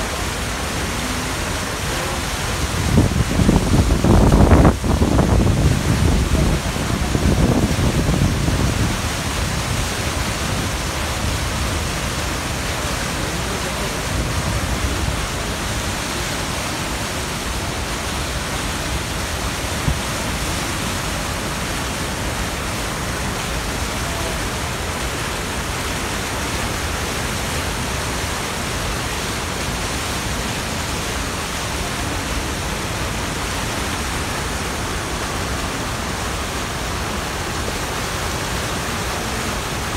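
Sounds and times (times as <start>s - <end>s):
river rapids rushing: 0.0s - 39.9s.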